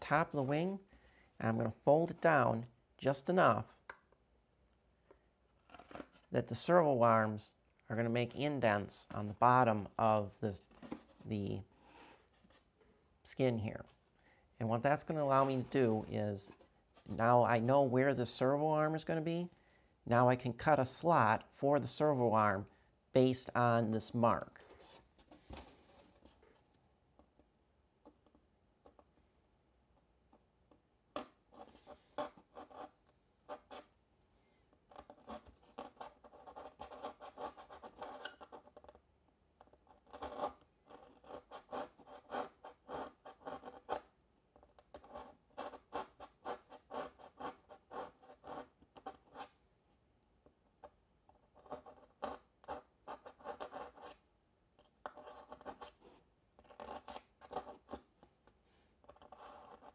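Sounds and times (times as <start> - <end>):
hobby knife cutting foam board: 35.0 - 38.6.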